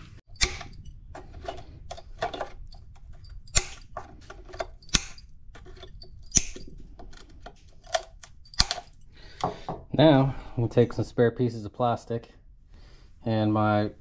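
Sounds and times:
side cutters clipping plastic: 0.4s - 9.0s.

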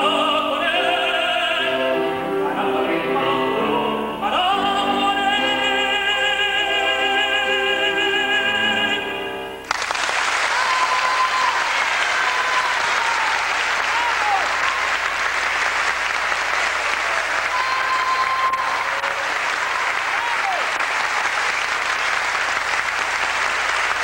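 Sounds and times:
man singing with vibrato: 0.0s - 9.6s
audience applause: 9.6s - 24.0s.

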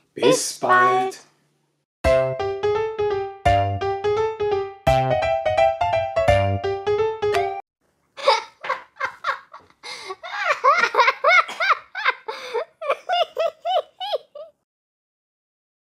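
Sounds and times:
high-pitched voice laughing: 8.2s - 14.6s.

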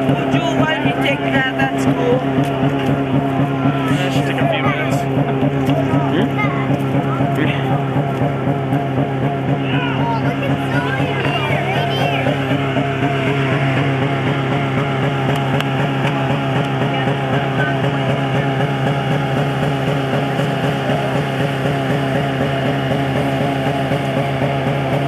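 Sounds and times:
vehicle engine droning: 0.0s - 25.0s.

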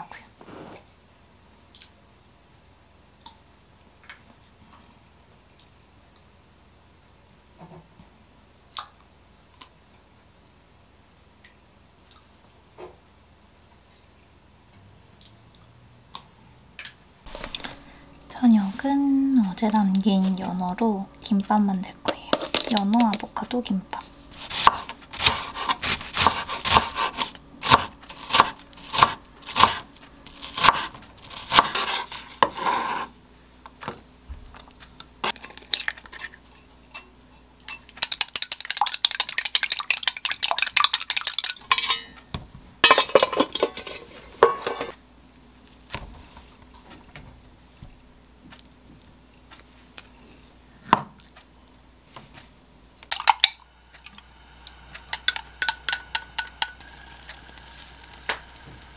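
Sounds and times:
egg beaten with chopsticks: 38.0s - 41.6s, 54.9s - 58.2s
dishes and utensils clinking: 41.3s - 44.9s.

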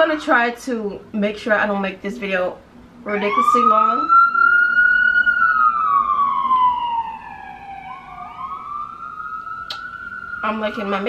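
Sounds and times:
police siren wailing: 0.0s - 0.6s, 3.0s - 11.0s.

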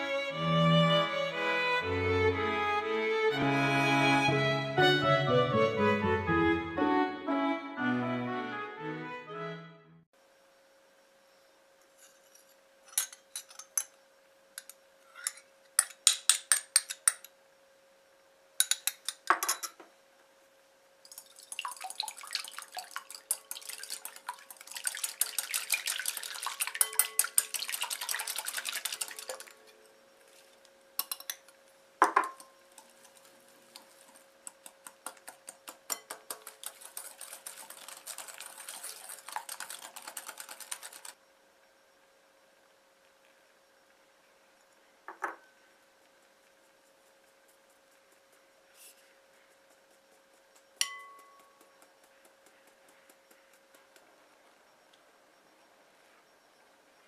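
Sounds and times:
glass bowl clink: 26.3s - 28.1s, 50.8s - 51.6s
utensil clicking against glass bowl: 50.8s - 54.0s.

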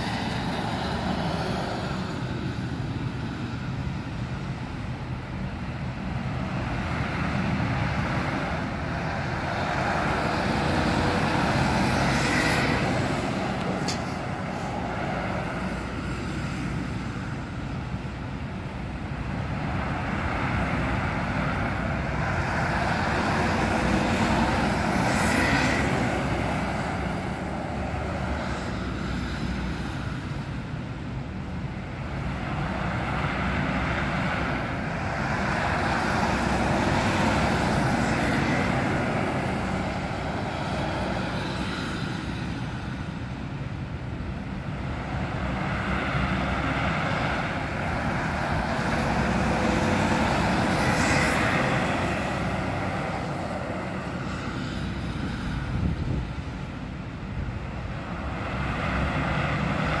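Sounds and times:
bus engine rumble: 0.0s - 60.0s
street traffic noise: 0.0s - 60.0s.

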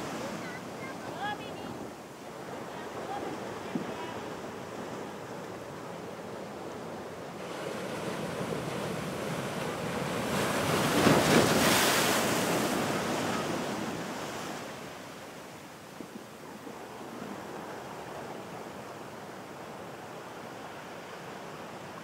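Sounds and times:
ocean surf breaking: 0.0s - 15.6s.

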